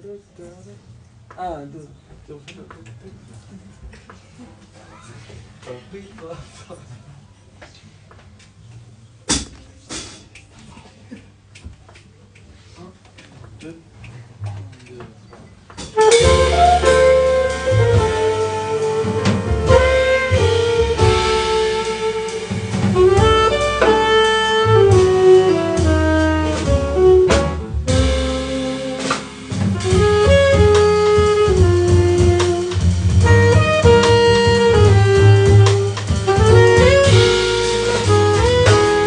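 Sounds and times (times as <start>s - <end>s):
jazz band playing: 15.6s - 39.0s
saxophone melody: 16.0s - 39.0s.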